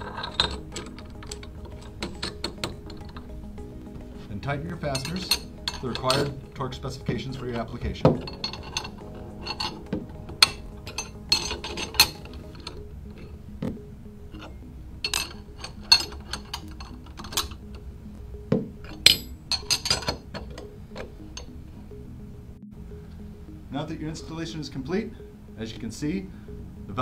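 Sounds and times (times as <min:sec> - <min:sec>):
wrenches clinking on metal nuts: 0:00.0 - 0:17.9, 0:18.6 - 0:21.6
background music: 0:00.0 - 0:27.0.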